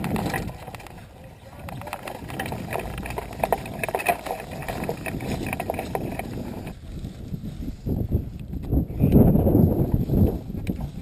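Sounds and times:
rustles and knocks of harness: 0.0 - 7.5
wind buffeting microphone: 0.0 - 11.0.

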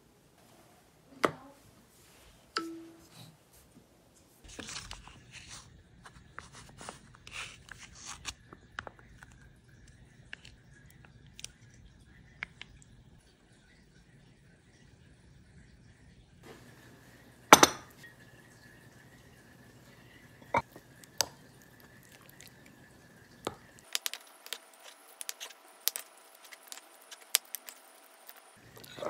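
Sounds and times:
plastic pouch crinkling: 23.8 - 29.0.

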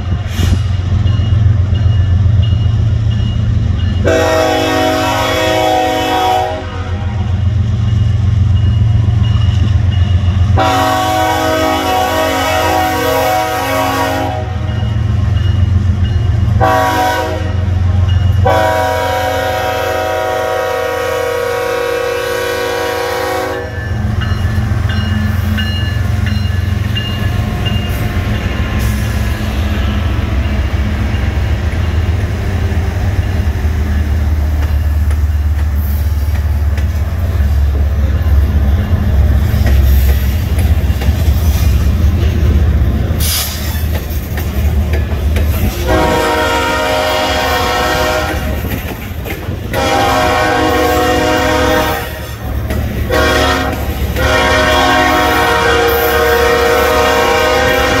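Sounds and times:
diesel locomotive rumbling past: 0.0 - 58.0
locomotive air horn blasts: 4.0 - 7.4, 10.6 - 14.7, 16.6 - 23.8, 45.8 - 48.6, 49.7 - 52.4, 53.1 - 58.0.

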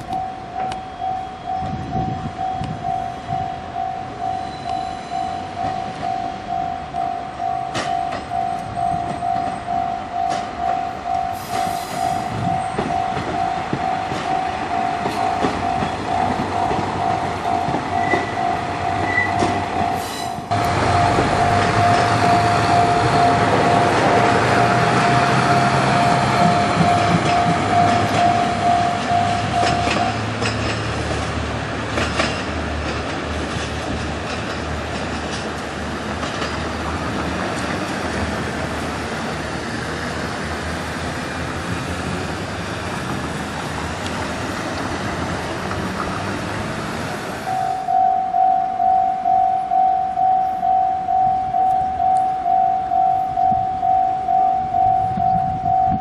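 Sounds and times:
level-crossing bell ringing: 0.0 - 11.5, 12.4 - 30.2, 47.5 - 56.0
diesel train engine rumble: 0.0 - 56.0
train wheels on rails: 0.0 - 56.0.

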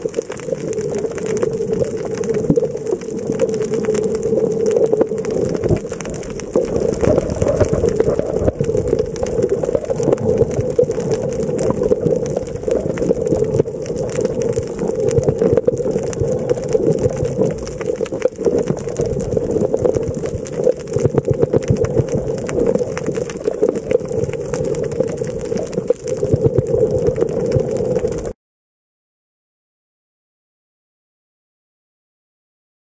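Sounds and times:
fine crackling and ticking: 0.0 - 28.4
low underwater hum: 0.0 - 28.4.

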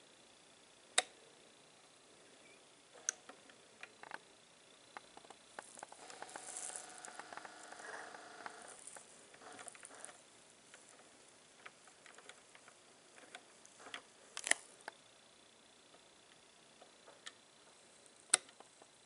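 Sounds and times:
vinyl surface crackle: 5.0 - 15.0.

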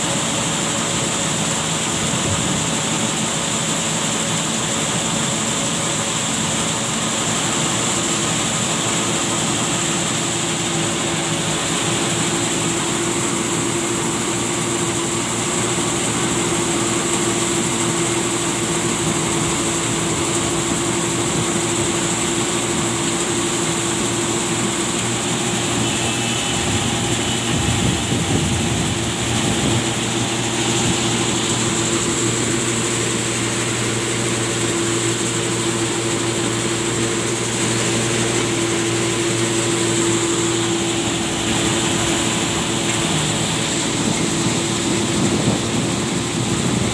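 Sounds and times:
constant whine: 0.0 - 46.9
engine-driven machine running: 0.0 - 46.9.

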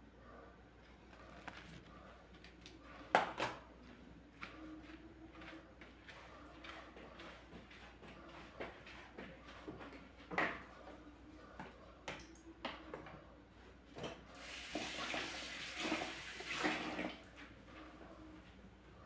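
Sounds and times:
tap water splashing into sink: 14.4 - 17.3.

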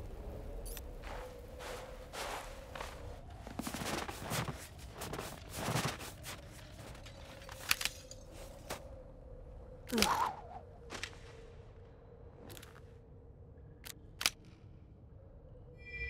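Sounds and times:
shuffling and rustles: 0.7 - 8.9.

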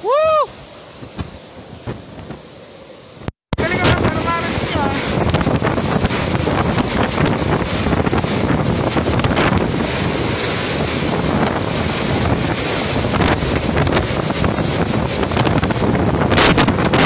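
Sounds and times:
driving rain: 0.0 - 17.0
wind buffeting microphone: 3.1 - 17.0.

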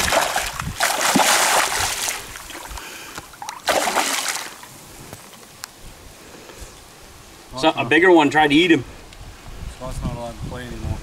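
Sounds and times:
fish splashing at water surface: 0.0 - 4.7
heavy splashing: 0.0 - 4.7.

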